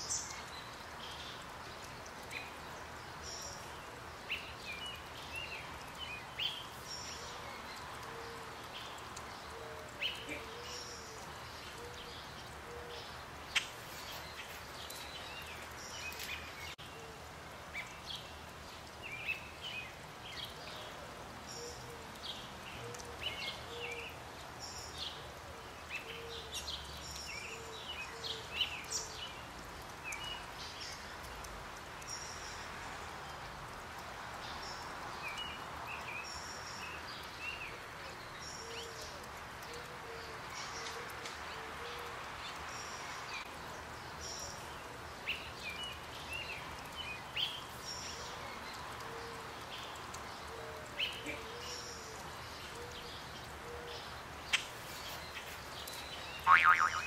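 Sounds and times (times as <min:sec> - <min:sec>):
birds chirping: 0:00.0 - 0:17.0, 0:34.5 - 0:57.0
outdoor background noise: 0:00.0 - 0:57.0
low short bird call: 0:56.5 - 0:57.0.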